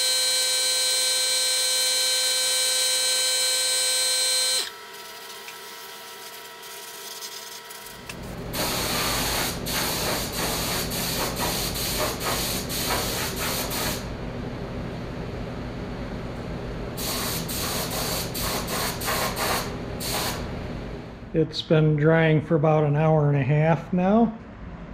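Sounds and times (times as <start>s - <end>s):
paint spray gun hissing: 8.6s - 14.1s, 17.0s - 20.4s.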